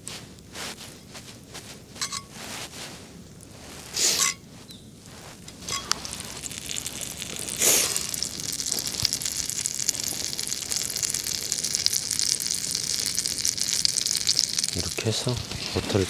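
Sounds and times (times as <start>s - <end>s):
food sizzling in hot pan: 5.2s - 16.0s.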